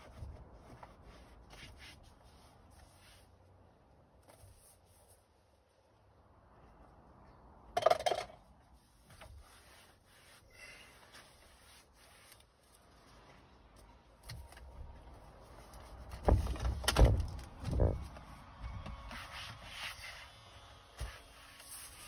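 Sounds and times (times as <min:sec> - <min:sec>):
clatter: 0:07.8 - 0:08.5
rubbing and scraping: 0:08.8 - 0:13.8.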